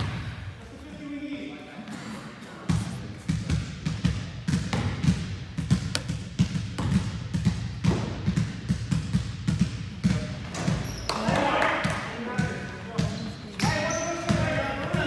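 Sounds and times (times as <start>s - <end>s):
basketball dribbling on wood floor: 2.7s - 11.1s.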